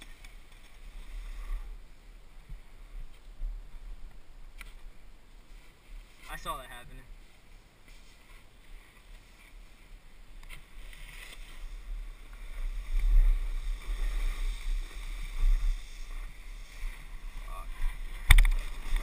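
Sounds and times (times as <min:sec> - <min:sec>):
snowboard scraping on snow: 0:07.2 - 0:19.0.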